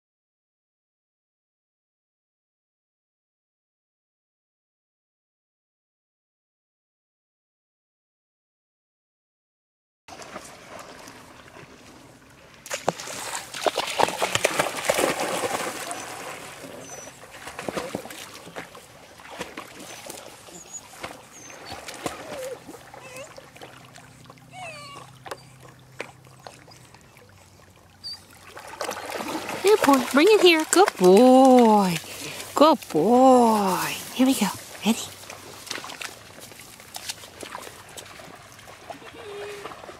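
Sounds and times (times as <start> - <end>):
puppy splashing through water: 10.1 - 39.9.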